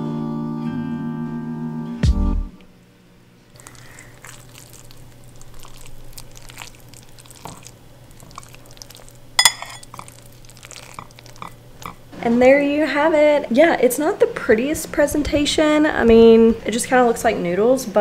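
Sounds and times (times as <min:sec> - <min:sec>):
fork stirring wet food: 0:03.6 - 0:12.0
sharp clink: 0:09.4 - 0:09.8.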